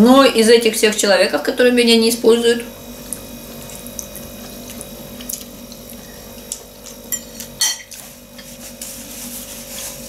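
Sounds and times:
room hum: 0.0 - 10.0
wet eating sounds: 3.0 - 8.1.

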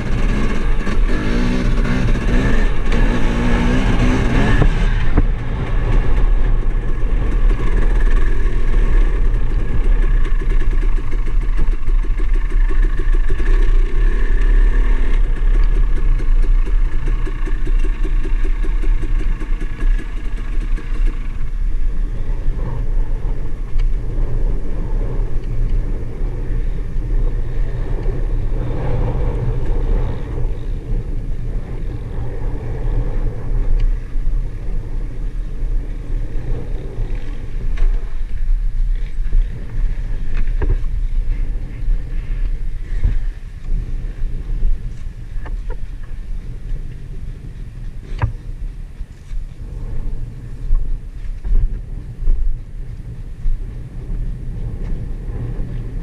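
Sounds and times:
dirt bike engine revving: 0.0 - 23.4
constant low rumble: 0.0 - 56.0.

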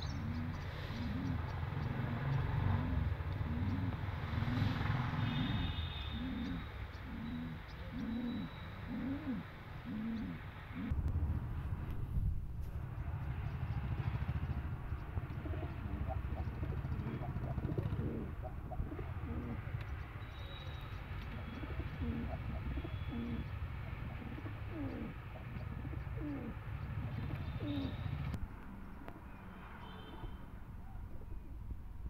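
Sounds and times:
pigeons cooing: 0.0 - 11.0, 15.2 - 19.8, 21.3 - 28.4
steady low rumble: 10.8 - 19.9.

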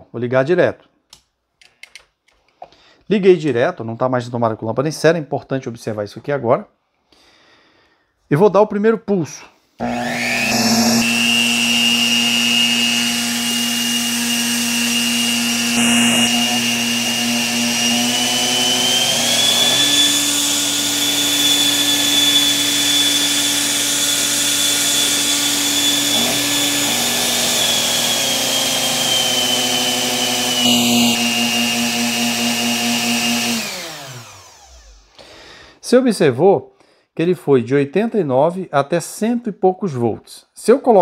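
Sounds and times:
electric motor whining: 9.8 - 35.1.

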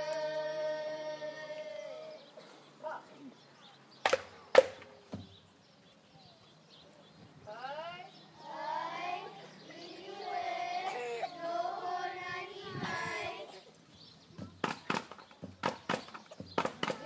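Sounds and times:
voices singing a wavering chant: 0.0 - 2.4, 8.3 - 13.7.

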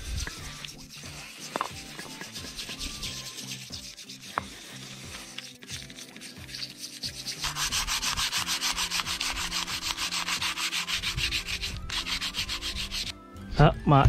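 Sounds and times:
sandpaper rubbing on metal: 0.0 - 13.1.

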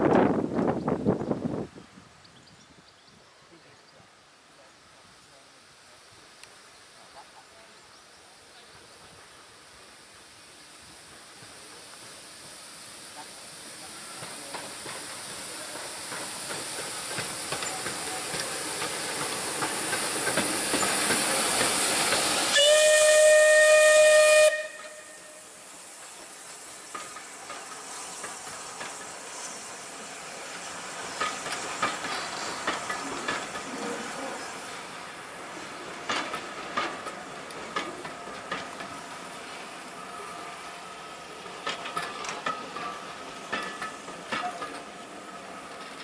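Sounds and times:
steam locomotive exhaust and hiss: 0.0 - 46.0
train coaches rolling past: 3.3 - 46.0
wheels clicking over rail joints: 14.1 - 22.5, 26.0 - 29.8, 30.4 - 39.6, 41.2 - 46.0
steam whistle: 22.4 - 25.6.

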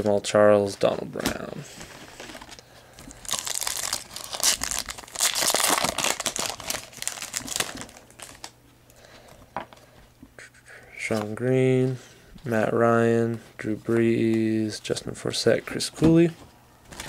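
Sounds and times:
wrapper crinkling: 2.2 - 8.6.

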